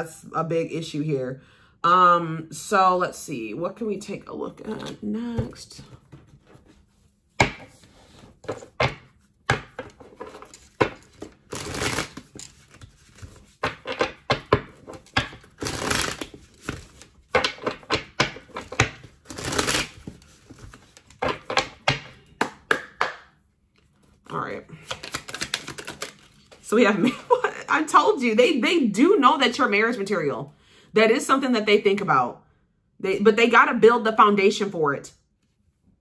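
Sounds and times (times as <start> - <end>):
cards shuffling: 6.0 - 22.8, 23.8 - 26.6.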